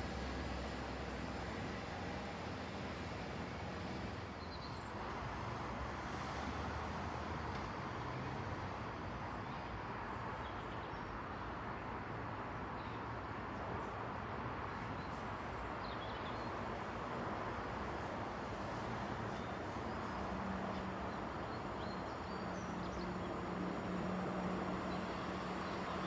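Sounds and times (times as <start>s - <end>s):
distant diesel train rumble: 0.0s - 6.3s.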